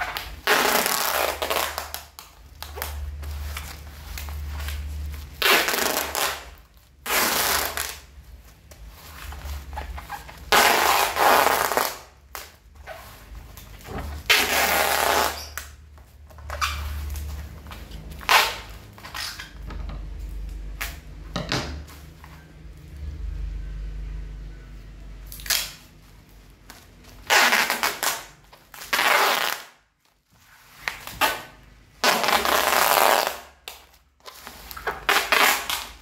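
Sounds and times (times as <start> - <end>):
packing tape tearing off roll: 0.0 - 15.8, 16.4 - 19.6, 25.3 - 25.9, 27.2 - 29.8, 30.8 - 36.0
rustling and handling of parcel: 0.0 - 23.6, 25.4 - 36.0.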